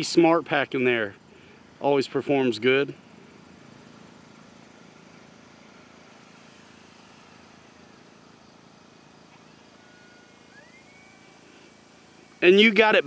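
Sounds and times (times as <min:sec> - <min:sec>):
distant model plane motor hum: 0:00.0 - 0:13.0
faint whine falling in pitch: 0:07.0 - 0:13.0.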